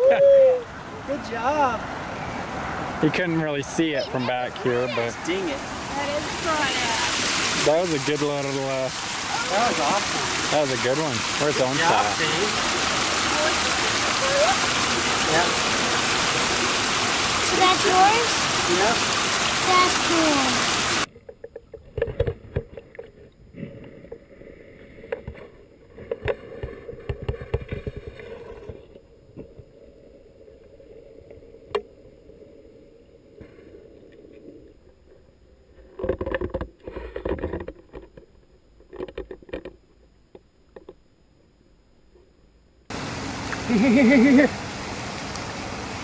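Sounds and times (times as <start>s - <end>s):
water sloshing: 3.6s - 23.0s.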